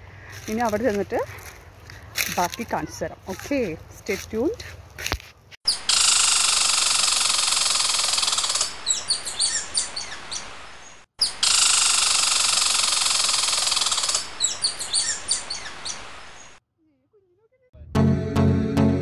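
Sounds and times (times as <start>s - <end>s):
squirrel rattling chatter and chirps: 5.7s - 10.2s, 11.2s - 16.0s.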